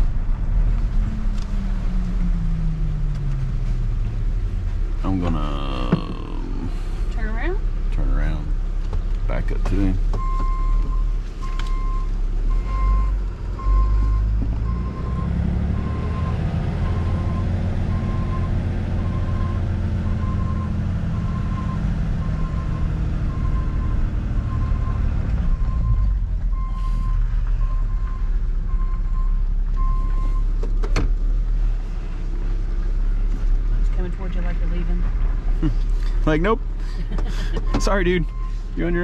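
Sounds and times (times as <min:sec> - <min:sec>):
truck engine revving: 0:10.7 - 0:28.2.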